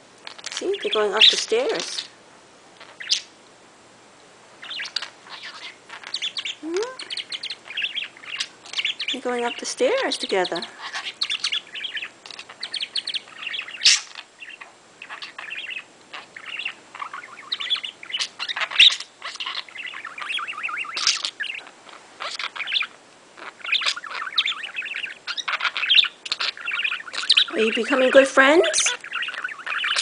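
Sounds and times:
budgie warbling and chattering: 0:04.6 - 0:21.6.

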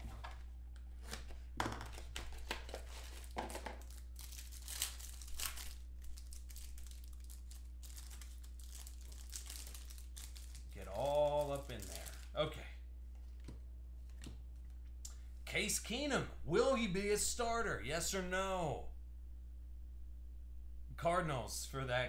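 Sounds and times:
foil wrapper crinkling and tearing: 0:02.1 - 0:12.3.

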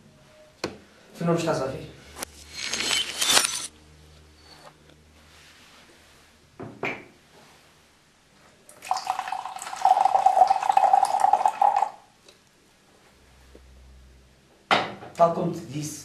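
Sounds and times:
liquor pouring into a glass: 0:08.7 - 0:12.0.

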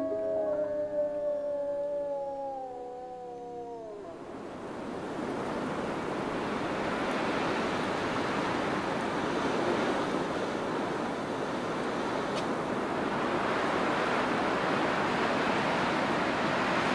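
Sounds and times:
wolf howling: 0:00.0 - 0:04.4.

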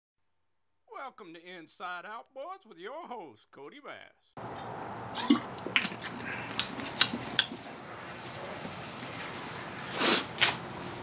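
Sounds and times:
person sipping: 0:04.5 - 0:07.6, 0:09.8 - 0:10.6.

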